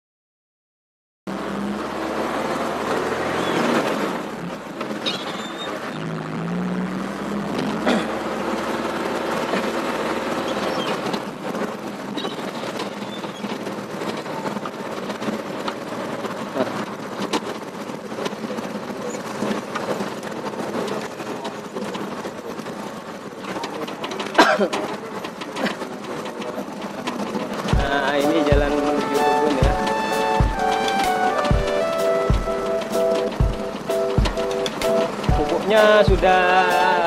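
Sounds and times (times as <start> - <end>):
truck engine running: 1.3 - 37.0
cab rattles and knocks: 9.4 - 37.0.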